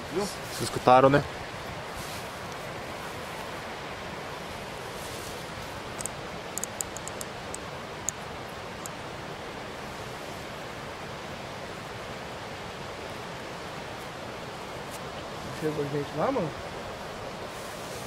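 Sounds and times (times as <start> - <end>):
running water rushing: 0.0 - 18.0
light clicks: 6.0 - 8.2.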